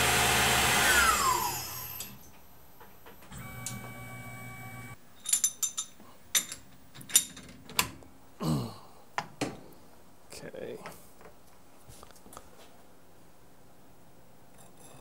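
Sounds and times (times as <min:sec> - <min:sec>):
mill spindle whine and hum: 0:00.0 - 0:02.1, 0:03.3 - 0:05.0
metallic clicks and knocks of vise: 0:05.2 - 0:08.0.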